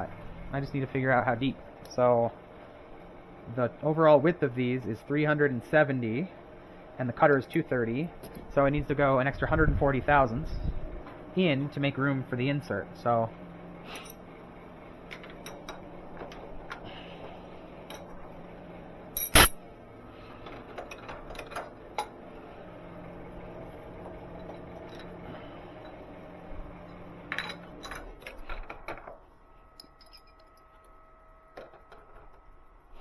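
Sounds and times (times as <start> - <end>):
steady low hum: 0.0 - 33.0
loud metallic clank: 19.2 - 19.6
metal tools clinking: 19.2 - 19.6, 20.4 - 22.2, 24.3 - 25.2, 26.9 - 29.0, 29.8 - 30.6.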